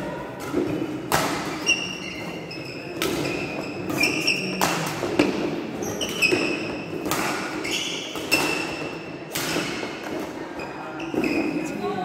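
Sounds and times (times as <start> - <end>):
shoes squeaking on court: 1.4 - 9.1, 10.6 - 11.6
racket striking shuttlecock: 3.0 - 10.2.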